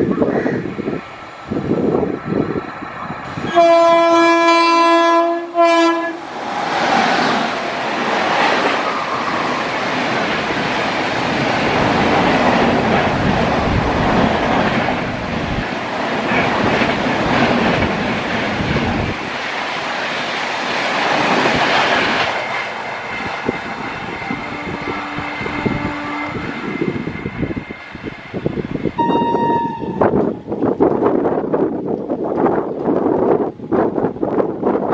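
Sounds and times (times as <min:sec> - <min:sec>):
train coaches rushing past: 0:00.0 - 0:34.9.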